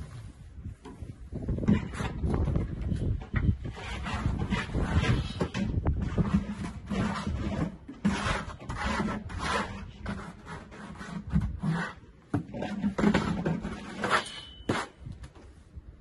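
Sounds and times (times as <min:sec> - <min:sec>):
trowel scraping mortar: 0:03.4 - 0:15.1.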